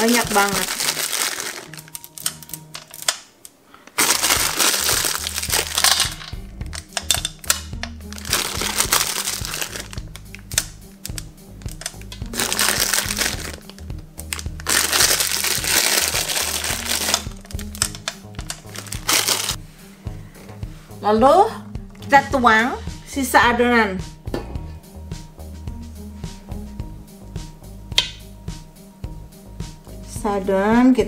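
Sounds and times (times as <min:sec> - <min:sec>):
plastic bag crinkling: 0:00.0 - 0:07.3, 0:08.1 - 0:19.6
music with stepping bass line: 0:04.0 - 0:31.0.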